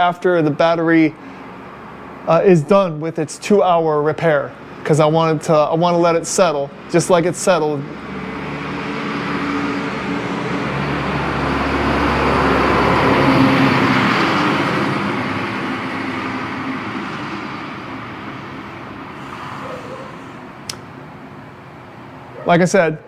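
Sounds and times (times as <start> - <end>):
vehicle driving past: 7.8 - 21.1.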